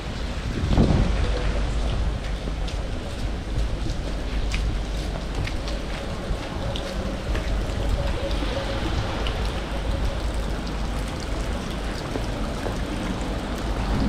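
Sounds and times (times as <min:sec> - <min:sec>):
rain hiss: 0:00.0 - 0:14.0
raindrop ticks: 0:00.6 - 0:14.0
low rumble: 0:13.1 - 0:14.0.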